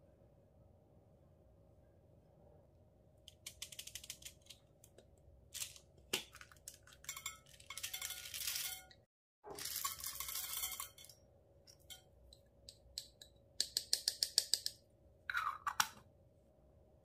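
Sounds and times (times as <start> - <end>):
plastic beads rattling in container: 5.6 - 8.9, 9.5 - 11.1
beads clattering out: 5.6 - 11.1.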